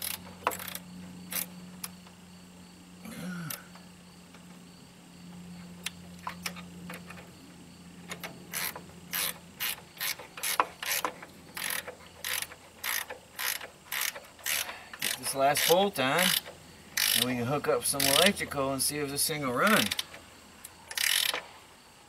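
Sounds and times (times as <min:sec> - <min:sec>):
ratchet wrench clicking: 0:00.0 - 0:02.0, 0:08.1 - 0:18.4, 0:19.7 - 0:21.4.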